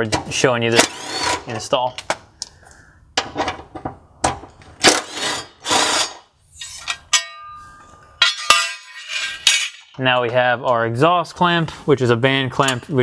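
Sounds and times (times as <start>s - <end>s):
metallic ring: 6.6s - 9.9s.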